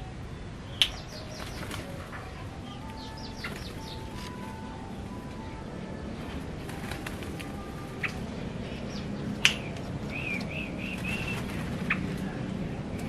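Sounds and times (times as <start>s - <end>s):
bird wavering chirps: 0.6s - 5.0s.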